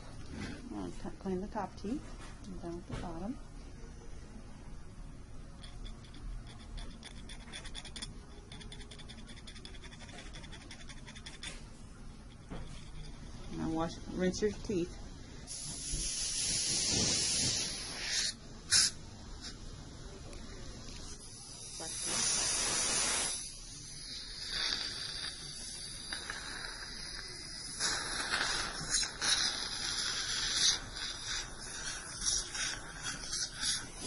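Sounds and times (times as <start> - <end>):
water syringe hissing: 15.5 - 19.6, 21.6 - 34.0.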